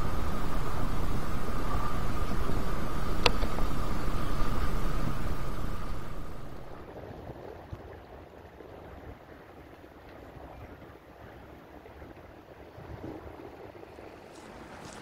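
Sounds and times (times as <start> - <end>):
faint high whine: 0.0 - 6.9
steady rushing noise: 0.0 - 7.4
outdoor background noise: 0.0 - 15.0.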